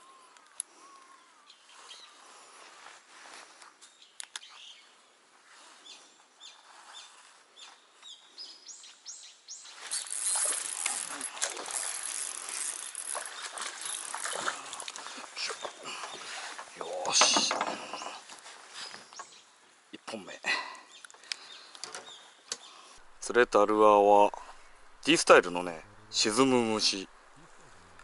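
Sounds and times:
faint clicks and chirps: 0:03.6 - 0:04.6, 0:11.7 - 0:16.2, 0:21.0 - 0:22.7
fish thrashing and splashing: 0:09.9 - 0:16.3.

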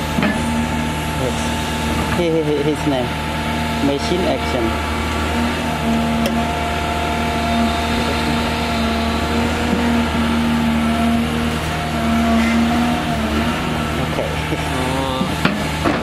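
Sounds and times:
excavator diesel engine running: 0:00.0 - 0:16.0.

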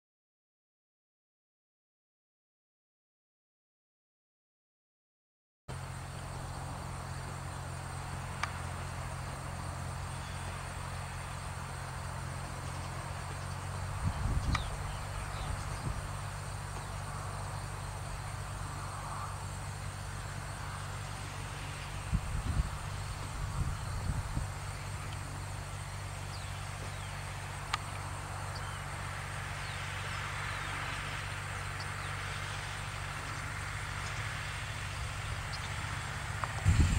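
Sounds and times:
insect trill: 0:05.7 - 0:36.9
tractor diesel engine running: 0:05.7 - 0:36.9.

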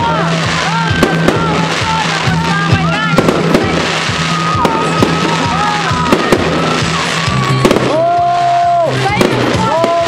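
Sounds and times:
fireworks bangs and crackles: 0:00.0 - 0:10.0
music playing: 0:00.0 - 0:10.0.

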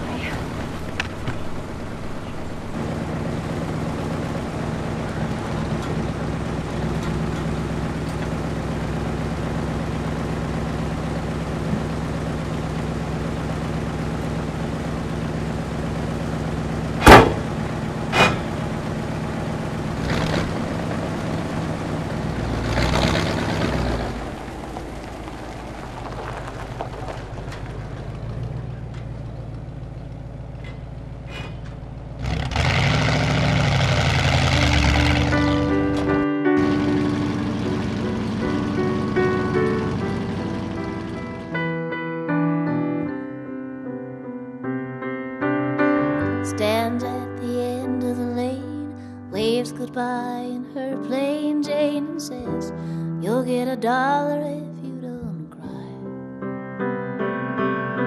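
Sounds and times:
truck engine idling: 0:00.0 - 0:41.9
door slamming: 0:17.0 - 0:18.8.

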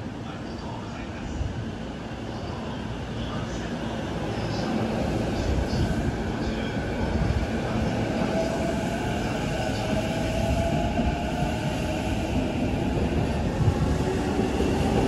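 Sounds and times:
train wheels rumbling on rail: 0:04.3 - 0:15.0.

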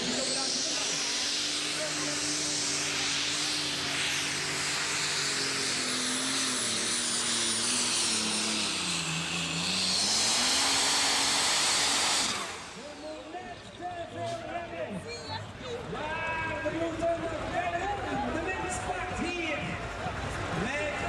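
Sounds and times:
diesel tractor engine at full throttle: 0:00.0 - 0:21.0.

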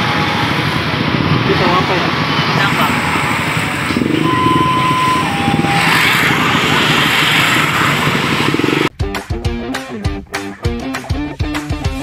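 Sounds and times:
motorcycle engines running: 0:00.0 - 0:08.9
street market noise: 0:00.0 - 0:08.9
two-note beep: 0:04.2 - 0:05.9.

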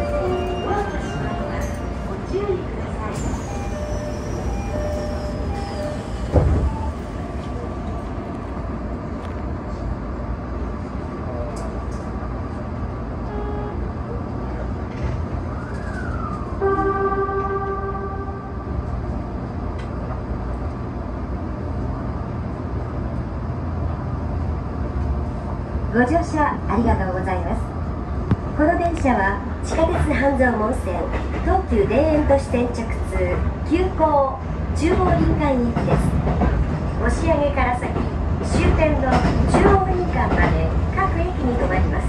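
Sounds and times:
train low rumble: 0:00.0 - 0:42.0
train horn: 0:13.3 - 0:13.8, 0:16.6 - 0:18.7.

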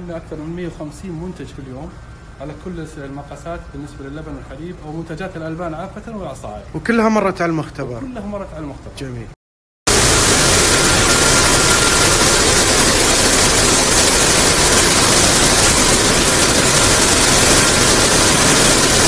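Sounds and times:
faint high whine: 0:00.0 - 0:08.8, 0:09.9 - 0:19.0
filling machine running: 0:09.9 - 0:19.0.

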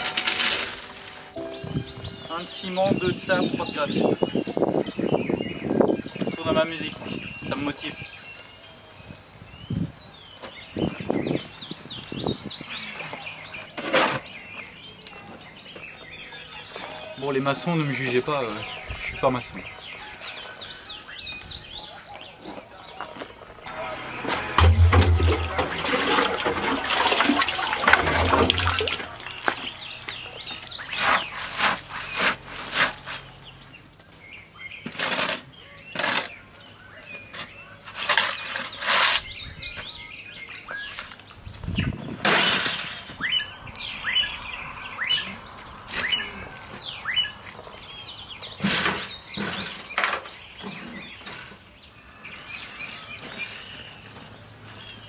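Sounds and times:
shovel scraping gravel and cement: 0:00.0 - 0:01.3, 0:13.7 - 0:14.4, 0:23.7 - 0:33.4, 0:34.8 - 0:36.4, 0:37.4 - 0:39.4
small birds chirping: 0:01.2 - 0:23.7, 0:27.2 - 0:55.0
water splashing in a metal barrel: 0:24.4 - 0:30.9.

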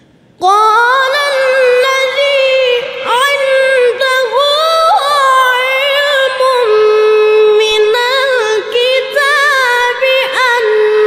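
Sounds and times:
person reciting in high melismatic voice: 0:00.4 - 0:11.0.

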